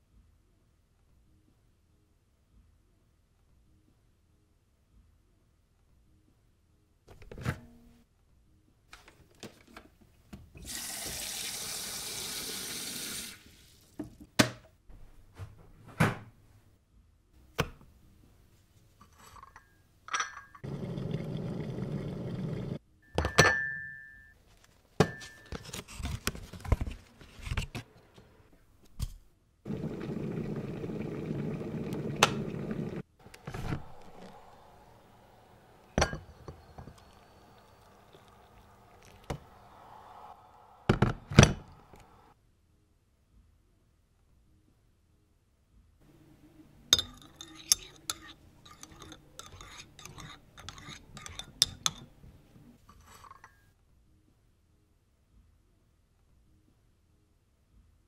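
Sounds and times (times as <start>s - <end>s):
water rushing in kettle: 10.6s - 13.9s, 20.6s - 22.8s, 29.7s - 42.3s.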